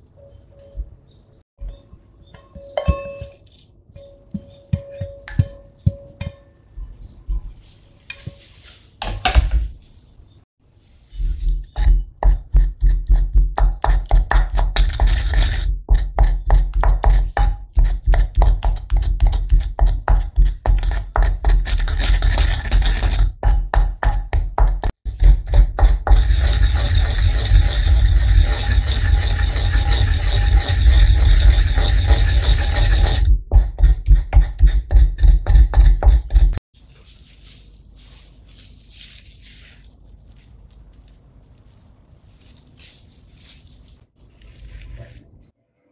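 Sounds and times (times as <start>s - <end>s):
pestle grinding in ceramic bowl: 11.5s - 36.6s.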